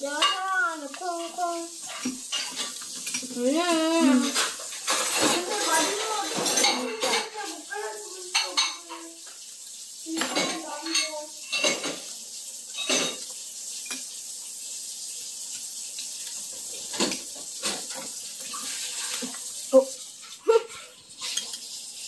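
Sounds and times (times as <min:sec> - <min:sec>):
chopsticks clinking on ceramic: 0:21.2 - 0:21.7.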